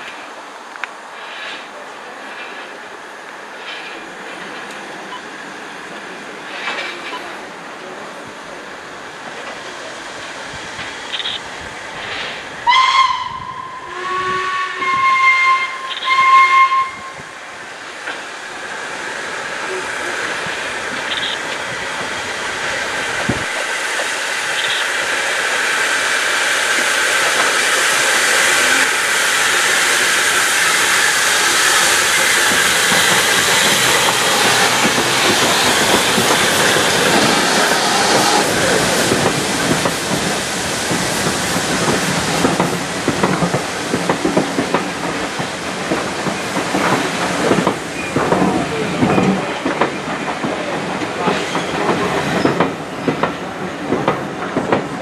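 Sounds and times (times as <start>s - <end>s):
steam train passing: 0.0s - 55.0s
steam locomotive whistle blasts: 12.6s - 17.2s.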